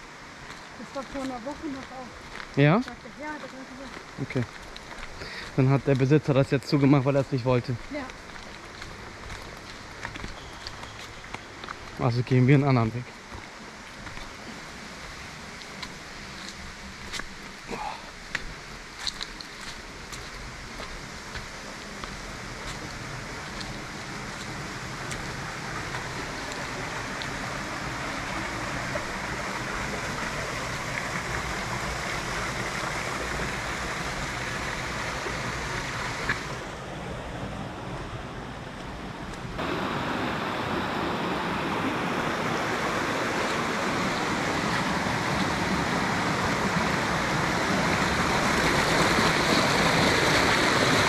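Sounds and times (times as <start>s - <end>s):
stream flowing over rocks: 0.0s - 51.0s.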